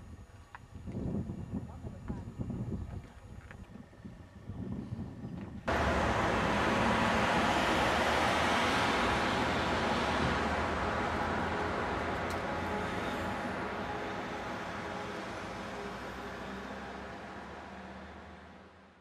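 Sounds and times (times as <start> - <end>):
motorway traffic rushing: 5.6 - 18.9.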